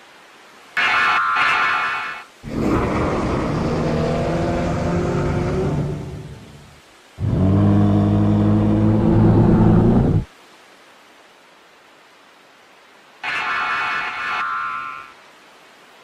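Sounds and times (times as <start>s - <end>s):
low monster growls: 2.4s - 6.4s, 7.2s - 10.3s.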